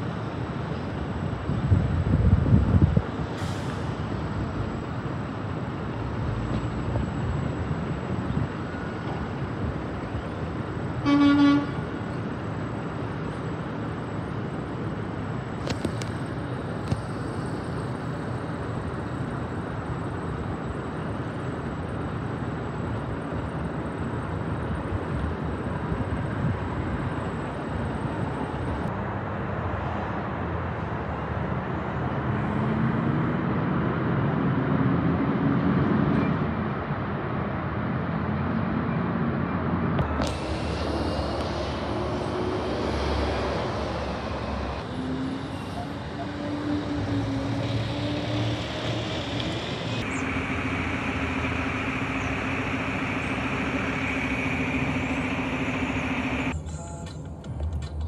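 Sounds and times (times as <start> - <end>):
truck horn toot: 11.0 - 11.9
diesel truck engine running: 39.6 - 46.2, 47.2 - 56.6.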